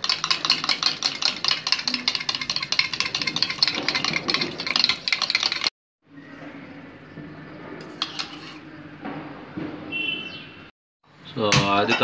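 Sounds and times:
spoon clinking in metal cup: 0:00.0 - 0:05.7.

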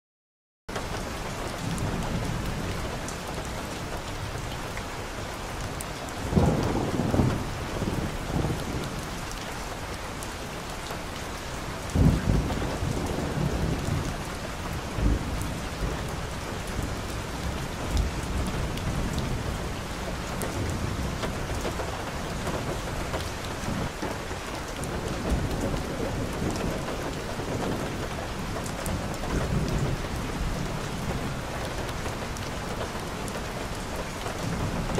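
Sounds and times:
steady rain on a wet street: 0:00.7 - 0:34.9.

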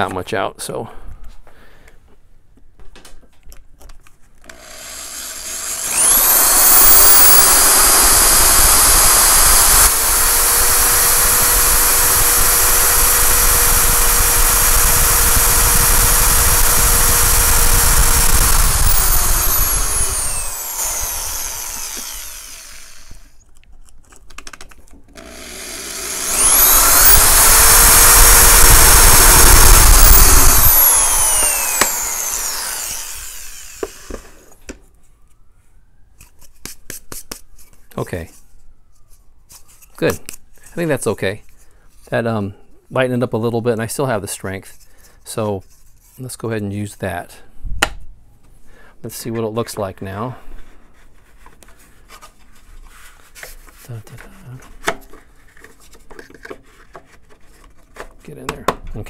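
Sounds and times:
electric drill hole saw cutting plywood: 0:04.4 - 0:23.4, 0:25.2 - 0:34.6.

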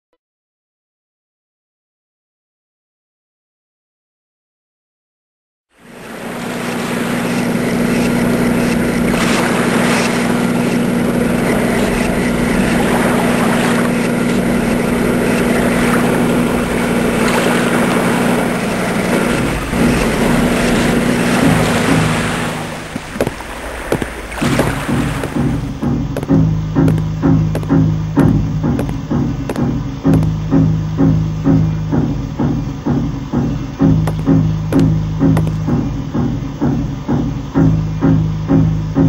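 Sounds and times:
boat engine humming: 0:05.7 - 0:39.0
water rushing: 0:05.8 - 0:36.2
wind rushing: 0:10.8 - 0:26.2.

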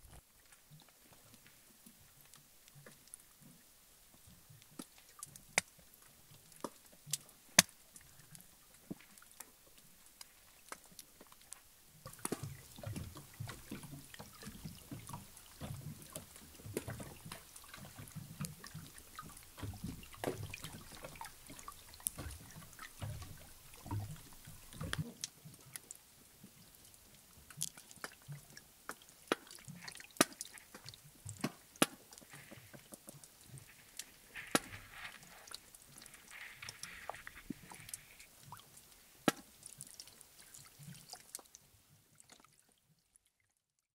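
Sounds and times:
underwater clicks and snaps: 0:06.4 - 0:26.0, 0:26.8 - 0:41.6
soft low underwater knocking: 0:12.0 - 0:25.8.

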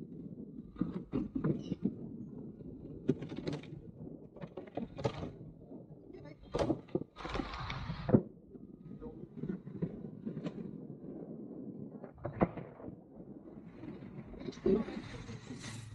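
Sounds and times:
knocks and rattles: 0:00.7 - 0:05.5.

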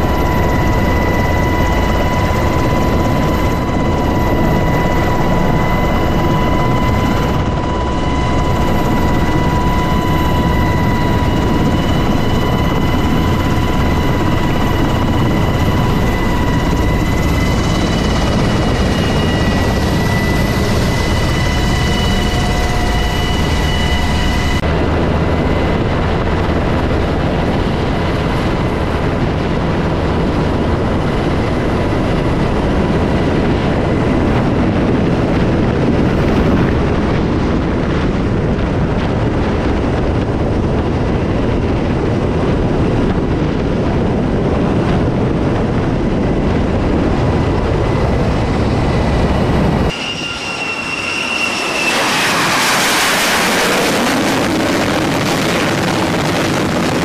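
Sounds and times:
aircraft turbine engine whine: 0:00.0 - 0:57.0
jet engine rising rush: 0:45.0 - 0:57.0.

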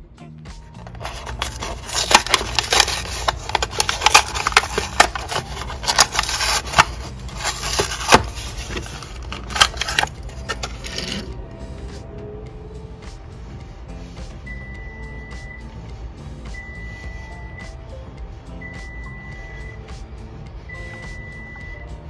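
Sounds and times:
plastic packaging crinkling and snapping: 0:00.8 - 0:11.3.

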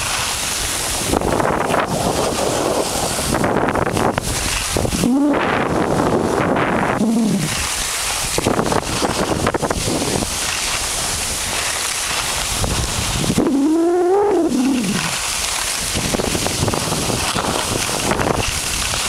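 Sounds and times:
skis scraping on snow: 0:00.0 - 0:19.0
wind rushing over microphone: 0:00.0 - 0:19.0
drawn-out voice: 0:05.0 - 0:05.8, 0:06.7 - 0:07.6, 0:13.4 - 0:15.2.

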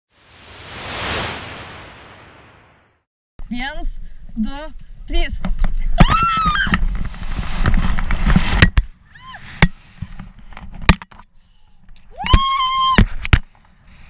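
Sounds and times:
woman screaming: 0:06.0 - 0:06.8, 0:09.1 - 0:09.4, 0:12.2 - 0:13.0.

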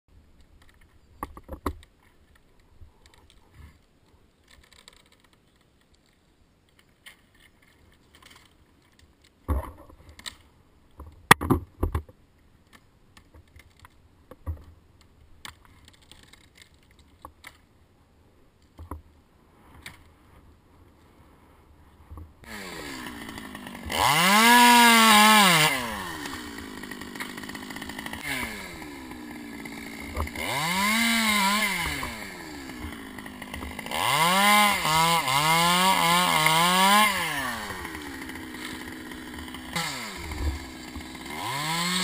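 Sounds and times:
climbing rope and carabiners handled: 0:00.4 - 0:17.7.

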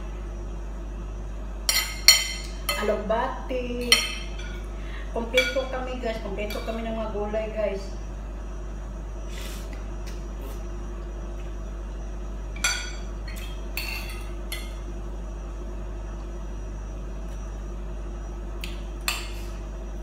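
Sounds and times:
steady low hum: 0:00.0 - 0:20.0
spoon clinking on ceramic bowl: 0:03.8 - 0:04.6.

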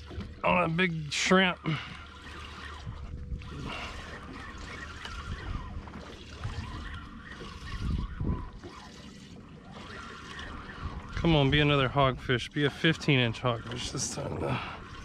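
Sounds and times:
water sloshing against boat hull: 0:00.0 - 0:15.0
wind noise on microphone: 0:02.8 - 0:03.8, 0:05.2 - 0:05.8, 0:07.6 - 0:08.6, 0:10.8 - 0:12.3.

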